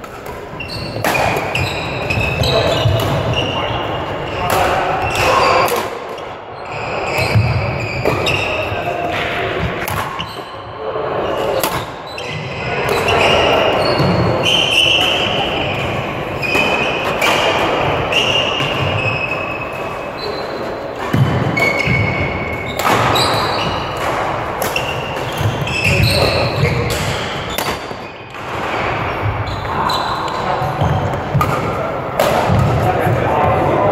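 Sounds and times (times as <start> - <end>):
rackets hitting shuttlecocks: 0.0 - 3.6, 7.2 - 10.4, 11.4 - 12.0, 12.8 - 19.0, 21.0 - 33.2
shoes squeaking on court floor: 0.1 - 10.6, 11.2 - 31.6
murmur of voices: 1.2 - 33.9.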